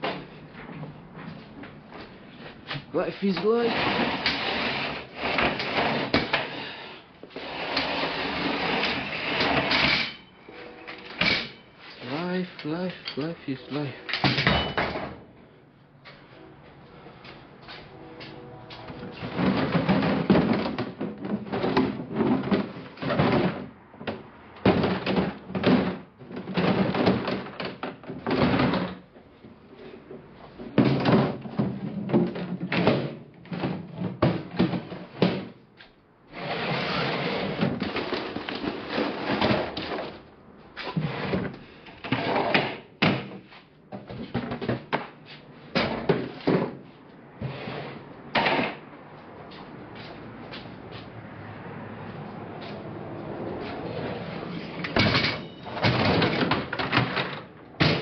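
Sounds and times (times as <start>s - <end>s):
rattling and scraping: 17.3s - 23.7s
bangs and knocks of cargo handling: 18.8s - 29.1s, 30.6s - 35.6s, 42.1s - 46.9s, 54.9s - 58.0s.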